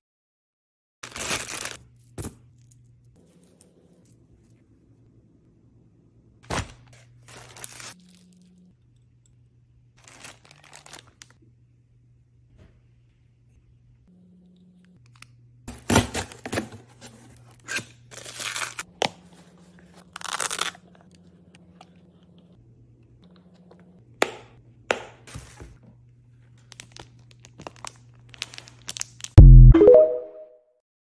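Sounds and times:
packaging rustling and tearing: 1.0 - 1.8, 6.5 - 8.2, 10.0 - 11.4, 17.7 - 18.9, 20.0 - 20.8, 26.6 - 29.4.

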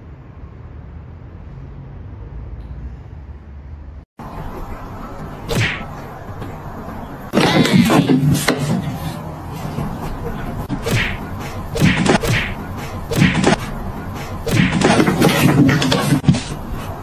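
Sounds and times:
cats swatting and thumping: 10.8 - 16.6.

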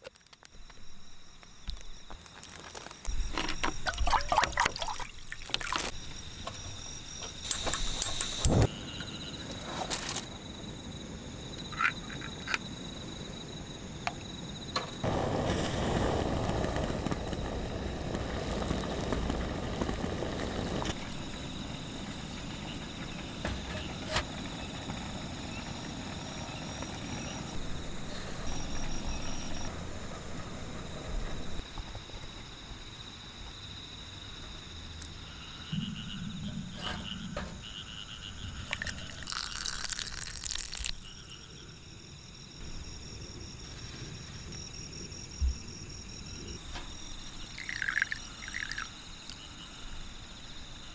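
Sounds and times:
insects chirping: 0.0 - 50.9
pot of water boiling: 3.1 - 6.4, 15.0 - 31.7, 37.7 - 41.1, 47.3 - 49.5.

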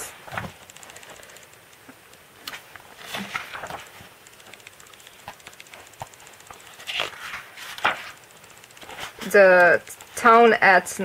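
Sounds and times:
page turning rustle: 0.1 - 1.2, 2.5 - 8.2, 8.8 - 9.4
faint clicks: 0.5 - 2.6, 3.3 - 10.2.

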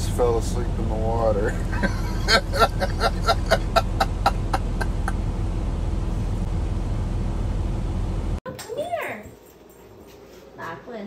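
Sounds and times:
steady low hum: 0.0 - 8.4
breathy laughter: 1.5 - 5.2.

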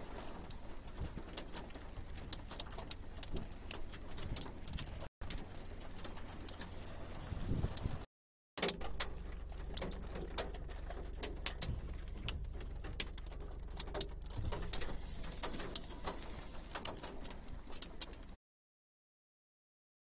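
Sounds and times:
raindrops ticking on car: 0.0 - 18.4
car low hum: 8.8 - 18.4.

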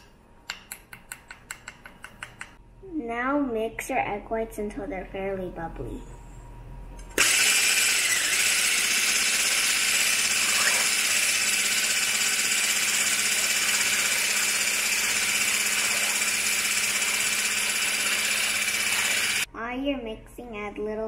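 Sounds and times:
immersion blender motor running: 7.2 - 19.5.

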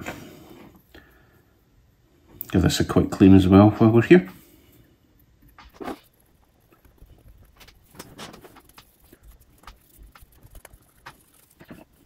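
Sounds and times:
rubbing sound: 5.7 - 12.0.

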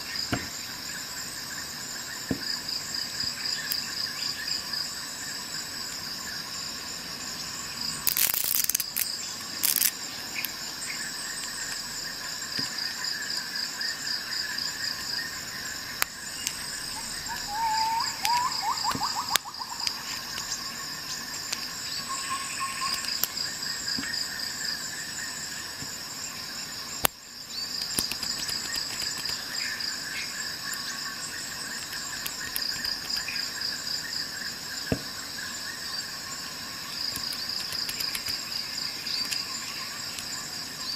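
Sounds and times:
crickets chirping: 0.0 - 40.9
ratchet and socket clicks: 8.0 - 10.5.

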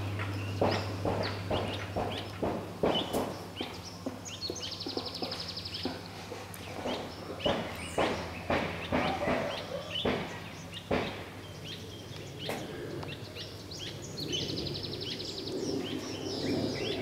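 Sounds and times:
birds chirping: 0.0 - 17.0
knocks: 0.6 - 6.0, 6.8 - 11.3.

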